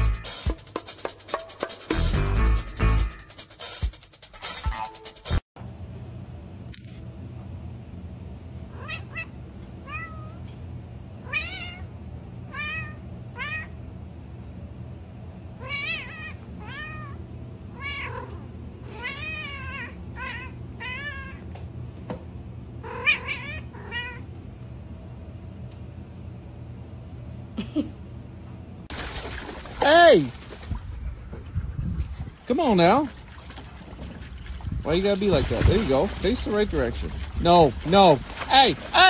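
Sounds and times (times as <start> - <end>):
steady low hum: 5.6 - 39.0
cat meowing: 8.7 - 10.5, 11.2 - 11.9, 12.5 - 13.8, 15.6 - 21.5, 22.8 - 24.3.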